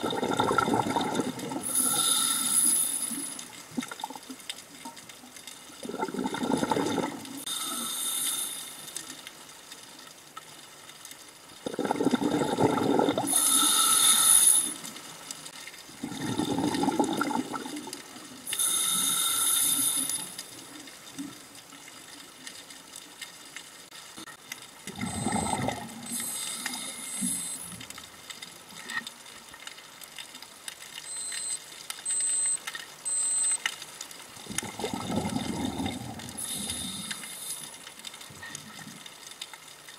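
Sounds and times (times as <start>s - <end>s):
regulator exhale bubbles: 0.0s - 4.2s, 5.8s - 8.9s, 11.6s - 14.8s, 16.0s - 20.5s, 24.9s - 27.8s, 34.4s - 37.8s
hissing inhalation: 1.6s - 3.4s, 7.4s - 9.0s, 13.2s - 14.8s, 18.5s - 20.4s, 36.4s - 37.7s
short high beeps: 31.1s - 33.6s.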